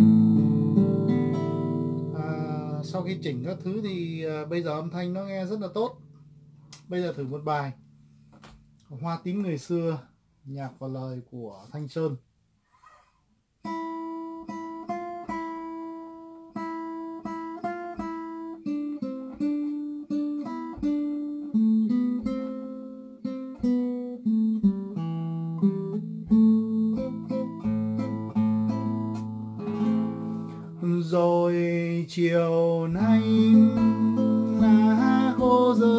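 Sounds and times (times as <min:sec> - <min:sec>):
guitar bass notes: 0:00.0 - 0:08.0, 0:20.1 - 0:35.9
plucked guitar melody: 0:00.0 - 0:08.8, 0:13.6 - 0:35.9.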